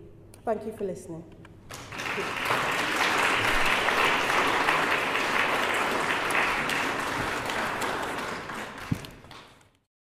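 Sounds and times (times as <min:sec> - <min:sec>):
audience applauding: 0:01.7 - 0:09.7.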